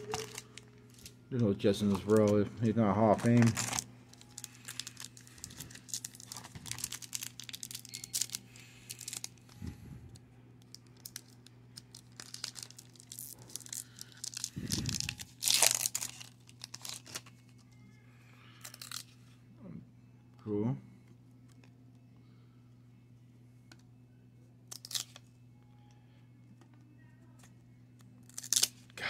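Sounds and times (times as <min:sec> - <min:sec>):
foil wrapper crinkling and tearing: 0:00.0 - 0:01.1, 0:03.1 - 0:09.5, 0:10.7 - 0:17.6, 0:18.5 - 0:19.2, 0:24.7 - 0:25.3, 0:28.2 - 0:28.9.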